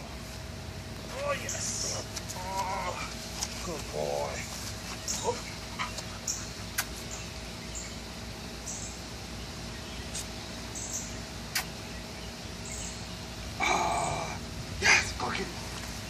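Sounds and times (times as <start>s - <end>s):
faint steady hum: 0.0s - 16.0s
sharp click: 11.5s - 11.7s.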